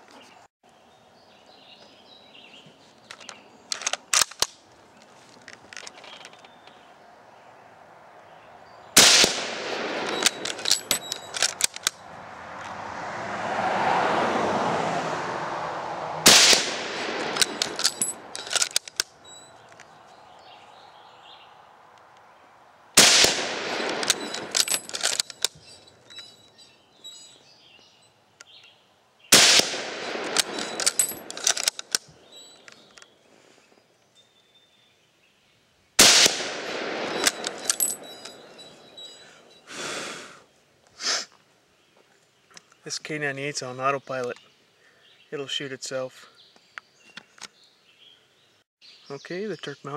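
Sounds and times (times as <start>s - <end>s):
rifle bolt metallic clicks: 3.1s - 4.6s, 9.0s - 12.0s, 16.3s - 19.9s, 23.0s - 26.3s, 29.4s - 33.1s, 36.0s - 39.2s
rifle shots: 9.0s - 11.9s, 16.2s - 18.8s, 23.0s - 25.2s, 29.3s - 31.8s, 36.0s - 38.5s.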